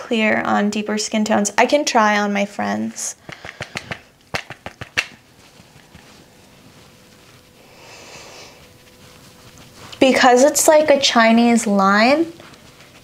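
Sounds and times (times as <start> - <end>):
powder puff soft taps: 3.2 - 5.2
faint rustle: 5.2 - 13.0.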